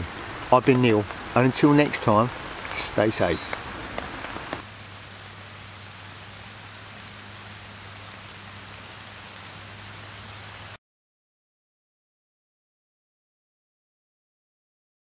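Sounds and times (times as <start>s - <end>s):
rain falling: 0.0s - 10.8s.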